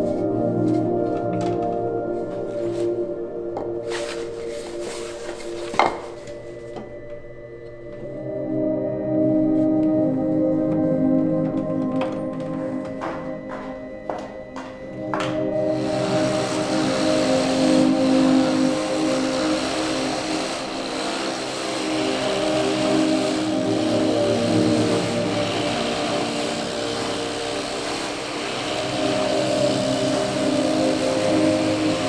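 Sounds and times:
carving machine droning: 15.0 - 32.0
wood being cut: 15.1 - 32.0.

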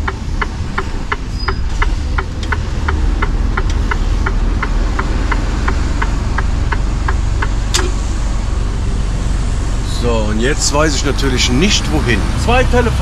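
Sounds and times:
turn signal ticking: 0.0 - 8.5
diesel engine droning: 0.0 - 13.0.

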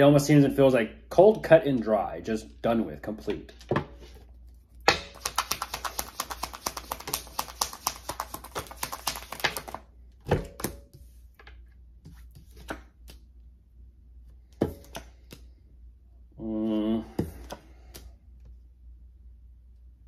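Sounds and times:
cards being shuffled: 3.6 - 9.9, 10.6 - 13.3
cards tapping and knocking: 4.9 - 13.3, 14.4 - 15.6, 17.2 - 18.1.

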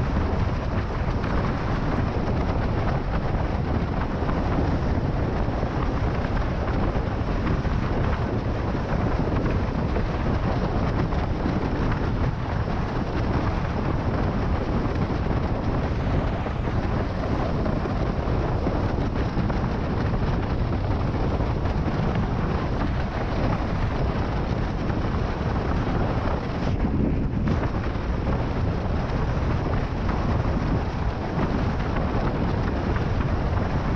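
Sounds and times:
water rushing under a board: 0.0 - 33.9
wind buffeting the microphone: 0.0 - 33.9.

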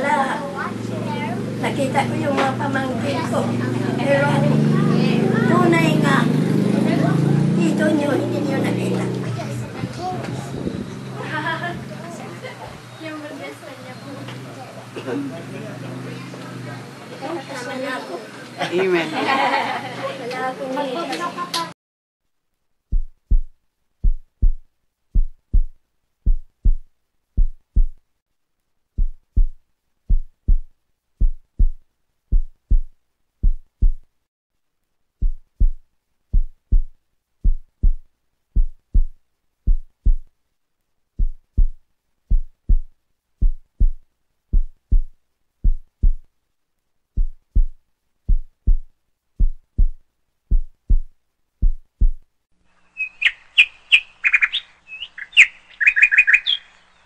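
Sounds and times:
heartbeat thumps: 22.9 - 28.0, 29.0 - 34.1, 35.2 - 40.3, 41.2 - 46.3, 47.1 - 52.3.

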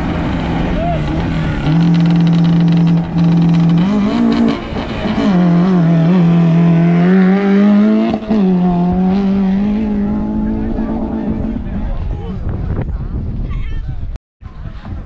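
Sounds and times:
engine revving hard: 0.0 - 11.8.

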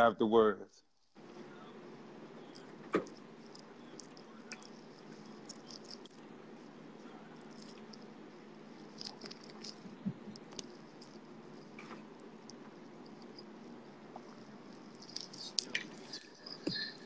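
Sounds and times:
low room hum: 0.0 - 17.0
light clicks and rustles: 14.1 - 17.0.

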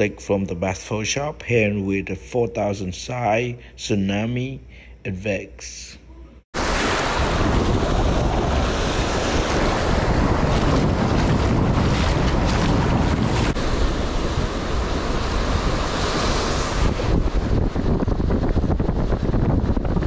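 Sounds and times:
surf breaking on beach: 6.6 - 20.0
wind blowing across microphone: 6.6 - 20.0.

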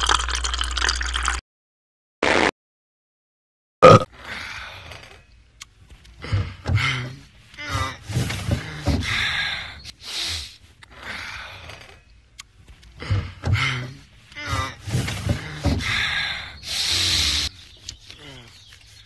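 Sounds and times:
person gasping breaths: 15.4 - 17.6.

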